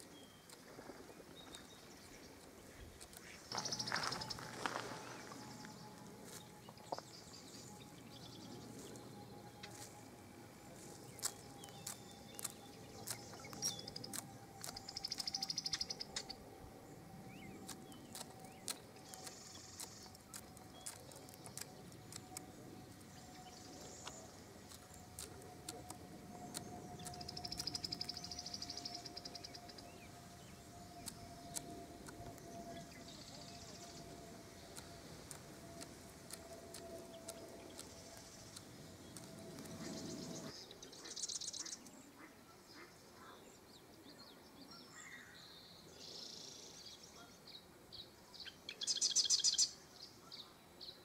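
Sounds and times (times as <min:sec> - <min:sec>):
faint steady hum: 0:00.0 - 0:51.0
small songbirds singing: 0:00.0 - 0:51.0
buzzy bird trills: 0:01.4 - 0:41.8
sharp clicks: 0:11.1 - 0:16.3, 0:17.6 - 0:23.1, 0:24.0 - 0:29.7, 0:30.9 - 0:32.5, 0:34.7 - 0:39.9.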